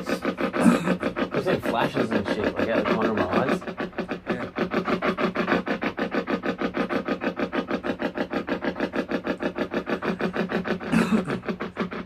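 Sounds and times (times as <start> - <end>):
radio static chopping: 0.0 - 12.0.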